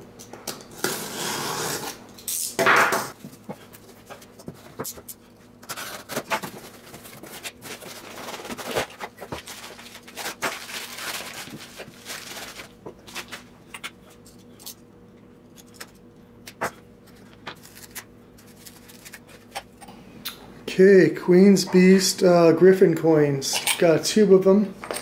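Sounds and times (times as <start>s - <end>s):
cardboard rustling and tearing: 5.7s - 13.5s, 17.6s - 19.3s.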